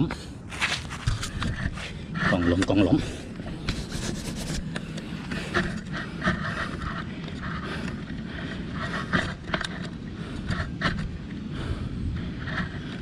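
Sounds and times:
steady low rumble: 0:00.0 - 0:13.0
man breathing hard: 0:02.9 - 0:03.8, 0:04.7 - 0:13.0.

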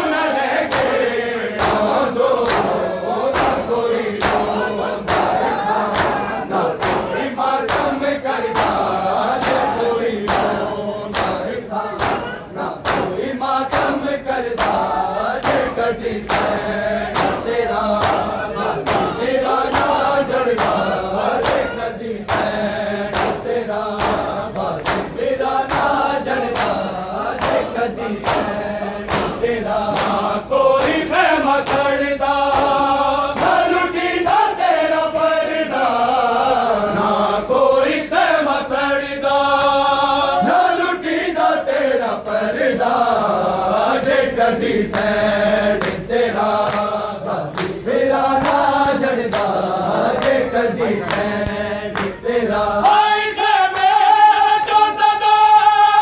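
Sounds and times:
crowd of male voices singing: 0:00.0 - 0:56.0
men singing a lament: 0:00.0 - 0:56.0
hands striking chests: 0:12.0 - 0:14.0.

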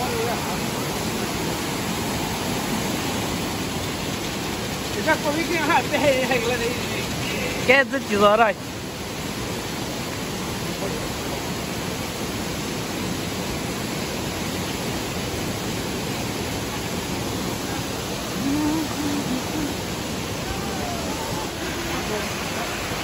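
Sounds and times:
waterfall rushing: 0:00.0 - 0:23.0
faint voices: 0:16.5 - 0:23.0.

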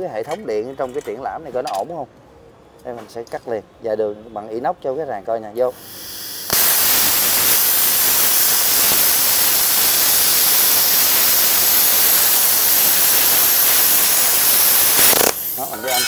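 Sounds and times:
plasma cutter hissing: 0:05.7 - 0:16.0.

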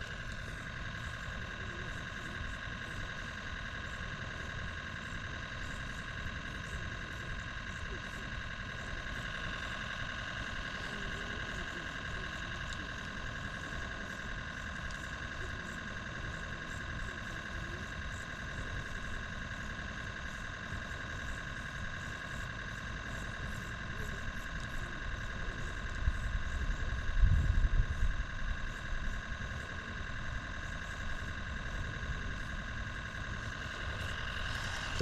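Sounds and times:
constant high drone: 0:00.0 - 0:35.0.

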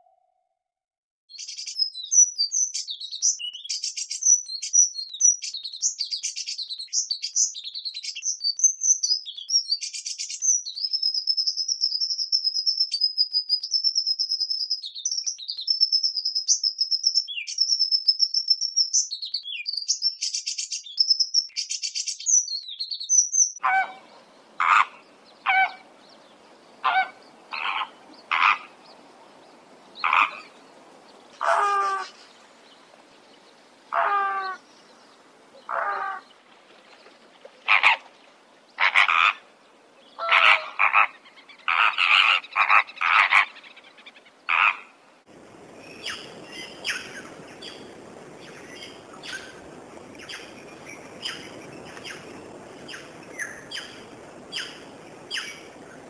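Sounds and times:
small bird chirping and trilling: 0:01.3 - 0:23.9, 0:45.8 - 0:49.6, 0:50.2 - 0:55.7
water bird calls: 0:23.6 - 0:29.2, 0:29.9 - 0:32.3, 0:33.9 - 0:45.0, 0:45.8 - 0:56.0
faint hiss: 0:23.9 - 0:38.8, 0:43.6 - 0:56.0.

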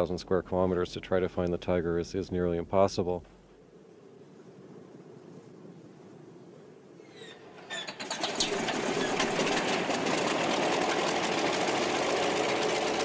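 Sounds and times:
radial engine starting and running: 0:07.7 - 0:13.0.

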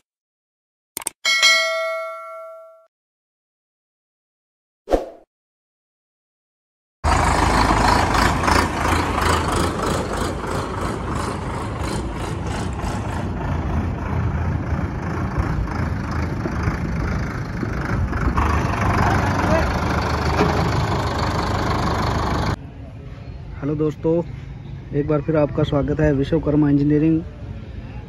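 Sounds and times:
tractor diesel engine running: 0:07.0 - 0:22.6.

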